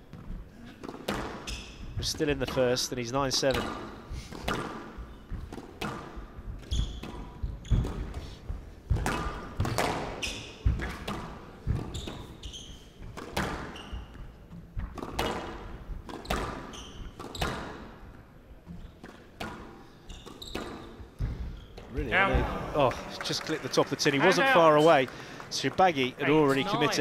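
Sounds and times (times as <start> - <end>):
squash ball knocks: 0.1 - 1.6, 3.4 - 6.2, 8.9 - 12.2, 14.8 - 17.8
shoes squeaking on wooden floor: 6.6 - 8.7, 11.6 - 15.0, 16.2 - 17.8, 20.0 - 22.6.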